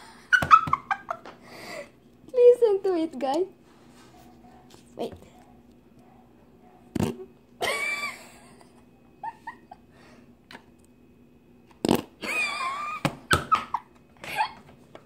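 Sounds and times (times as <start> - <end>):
slime fart noises: 7.0 - 7.3, 11.7 - 12.3.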